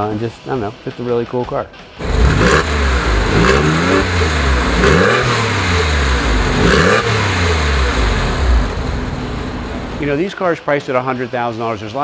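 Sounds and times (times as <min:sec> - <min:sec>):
car engine revving: 0:02.0 - 0:10.2.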